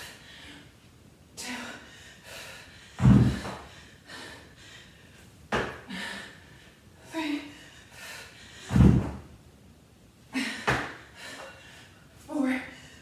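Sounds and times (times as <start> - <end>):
hard breathing: 1.4 - 8.9
dumbbells hitting rubber floor: 3.0 - 3.6, 8.7 - 9.2, 10.7 - 11.0.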